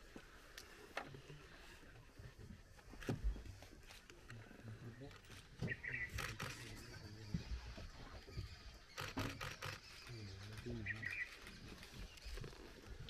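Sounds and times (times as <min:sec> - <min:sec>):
bird chirping: 0:04.4 - 0:13.0
camera shutters clicking: 0:06.0 - 0:06.7, 0:08.9 - 0:11.6.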